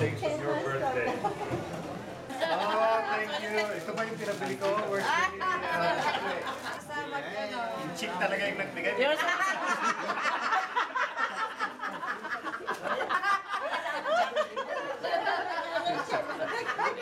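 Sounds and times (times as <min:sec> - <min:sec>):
people laughing: 0:00.9 - 0:03.6, 0:04.4 - 0:07.0, 0:09.0 - 0:17.0.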